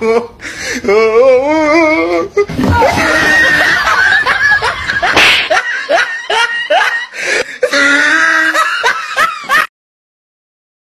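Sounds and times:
comic slaps and hits: 0:05.0 - 0:05.6.

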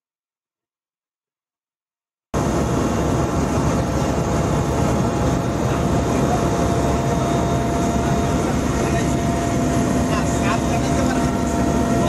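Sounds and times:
faint steady whine: 0:02.4 - 0:12.0
helicopter engine and rotor drone: 0:02.4 - 0:12.0.

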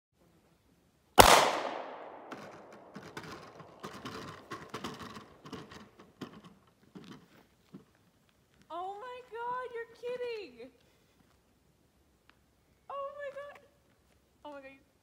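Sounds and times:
handgun shot echoing: 0:01.2 - 0:03.0
faint knocks and rustles: 0:02.4 - 0:08.7.

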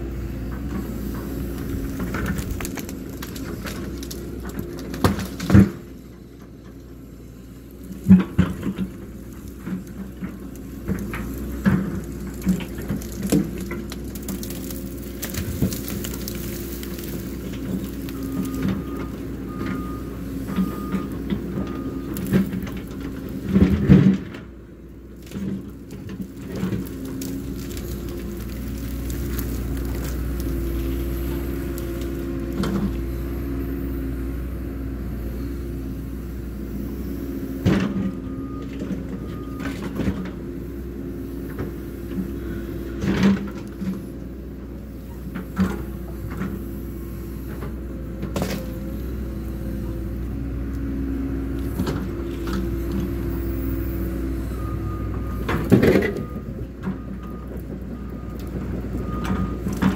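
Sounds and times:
excavator diesel engine: 0:00.0 - 0:59.9
branches snapping and crashing: 0:01.5 - 0:05.8, 0:07.9 - 0:19.1, 0:25.2 - 0:32.8, 0:48.3 - 0:48.7.

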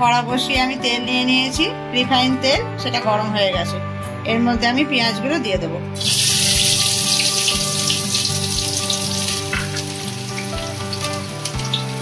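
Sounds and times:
onions sizzling in hot oil: 0:06.0 - 0:12.0.

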